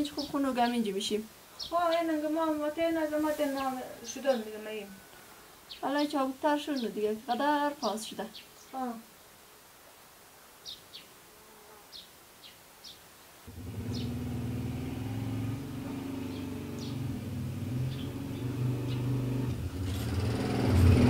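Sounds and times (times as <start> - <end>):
vehicle engine approaching: 13.5 - 21.0
bird chirps: 13.7 - 20.2.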